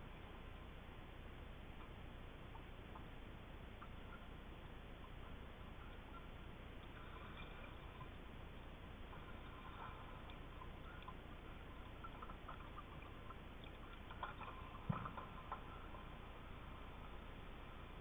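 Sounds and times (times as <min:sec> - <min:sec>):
soft underwater clicks: 0:03.8 - 0:08.2, 0:09.1 - 0:16.3
faint underwater hiss: 0:03.9 - 0:18.0.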